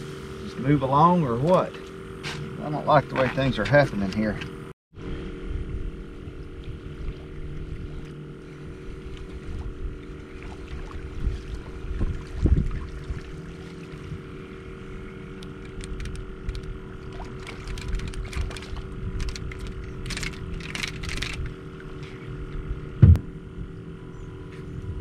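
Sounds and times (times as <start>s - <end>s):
steady low hum: 0.0s - 25.0s
wind buffeting microphone: 8.8s - 13.4s
fishing reel clicking: 15.4s - 16.7s, 17.3s - 21.5s
thump: 23.0s - 23.3s.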